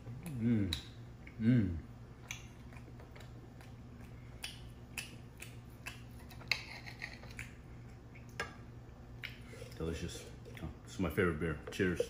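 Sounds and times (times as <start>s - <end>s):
low steady hum: 0.0s - 12.0s
person chewing: 2.2s - 8.4s
knife and fork on a plate: 6.2s - 7.5s.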